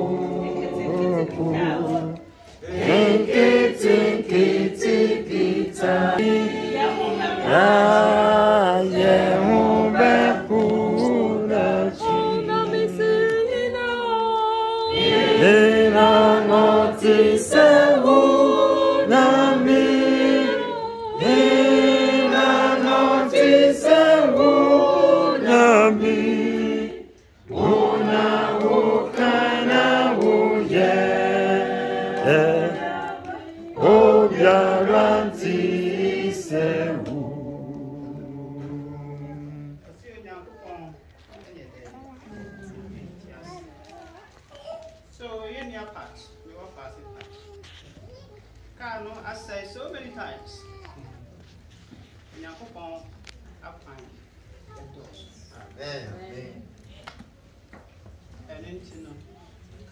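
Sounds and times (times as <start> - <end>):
choir singing in harmony: 0.0 - 39.8.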